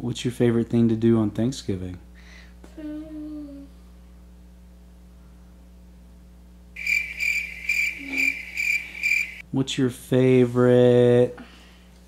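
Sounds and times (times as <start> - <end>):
cricket chirping sound effect: 6.8 - 9.4
child saying hmm: 8.0 - 8.4.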